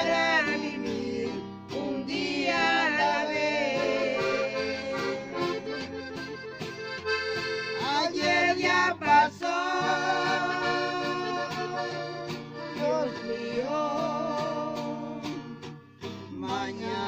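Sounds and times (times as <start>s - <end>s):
accordion melody: 0.0s - 17.0s
acoustic guitar strumming: 0.0s - 17.0s.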